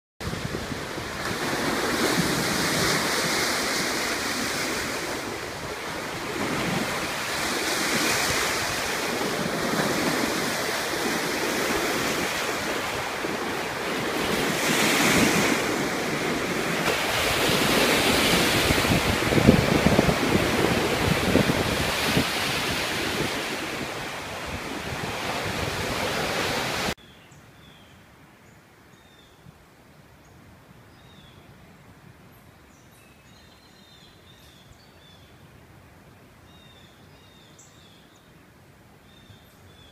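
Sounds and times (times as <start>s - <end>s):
wind on microphone: 0.2s - 26.9s
waves breaking on shore: 0.2s - 27.0s.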